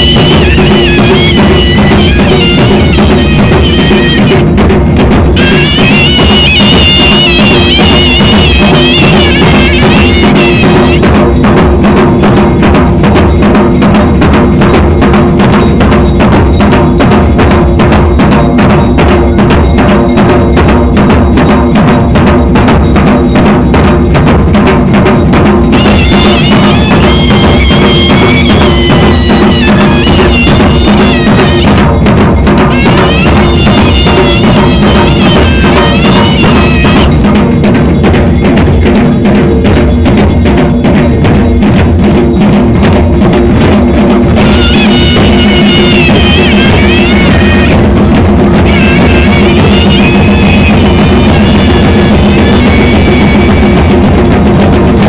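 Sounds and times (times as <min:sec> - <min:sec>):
high wavering melody: 0:00.0 - 0:04.5, 0:25.7 - 0:32.0, 0:32.6 - 0:37.3, 0:44.4 - 0:54.0
barrel drums beaten fast: 0:00.0 - 0:55.0.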